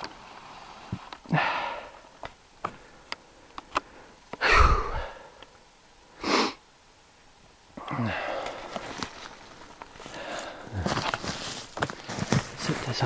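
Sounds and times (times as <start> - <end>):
person breathing hard: 1.3 - 6.6, 7.8 - 8.9, 10.0 - 11.5.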